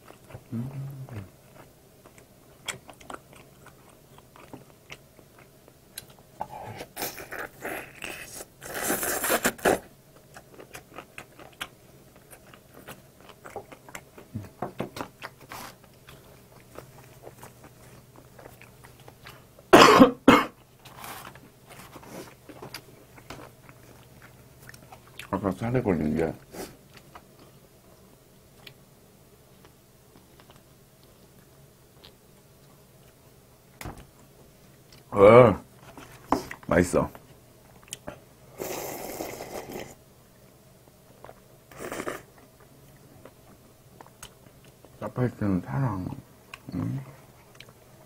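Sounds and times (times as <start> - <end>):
faint chewing: 0.0 - 19.7, 20.6 - 25.4, 28.5 - 28.8, 29.5 - 33.4, 35.8 - 40.0, 41.1 - 45.0, 46.1 - 48.0
slurping noodles: 38.6 - 40.0, 41.7 - 42.3.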